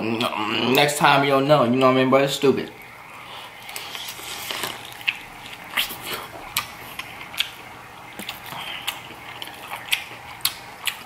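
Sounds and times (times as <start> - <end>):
chewing corn crunches: 3.5 - 11.0.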